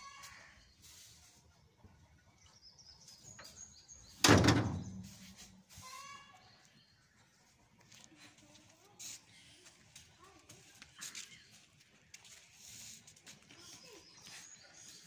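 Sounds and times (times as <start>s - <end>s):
loud thump: 4.2s - 5.1s.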